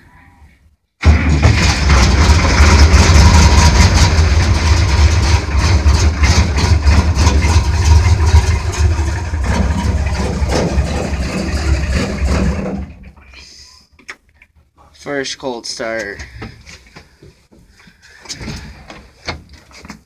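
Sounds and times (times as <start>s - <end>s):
tractor engine running: 1.0s - 13.2s.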